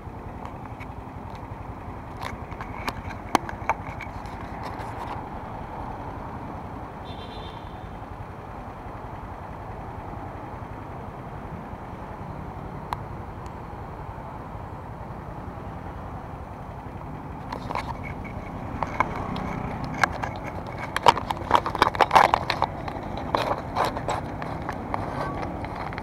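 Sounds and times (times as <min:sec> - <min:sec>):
motor scooter engine running: 0:00.0 - 0:26.0
sharp clicks and knocks: 0:00.3 - 0:05.5, 0:16.7 - 0:26.0.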